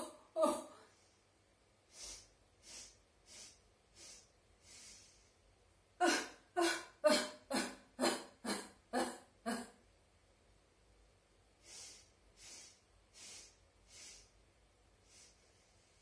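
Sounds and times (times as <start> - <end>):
woman sobbing: 0.0 - 0.8, 6.0 - 9.7
woman sniffing: 1.9 - 5.3, 11.6 - 14.4, 15.0 - 16.0.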